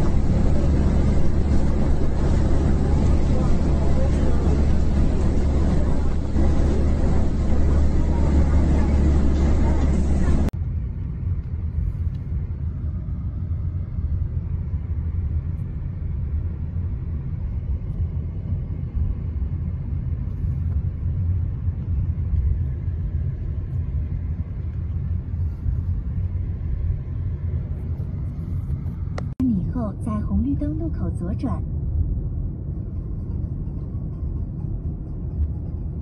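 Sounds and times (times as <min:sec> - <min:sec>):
car rumble from inside cabin: 0:00.0 - 0:10.6.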